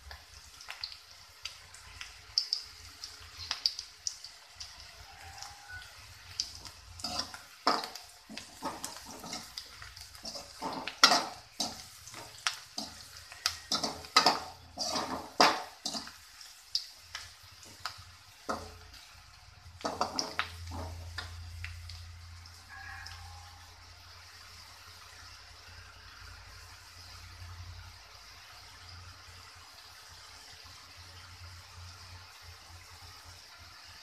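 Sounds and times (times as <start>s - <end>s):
onions sizzling in oil: 0.0s - 34.0s
metal skimmer scraping a pan: 7.0s - 16.2s, 19.8s - 21.3s.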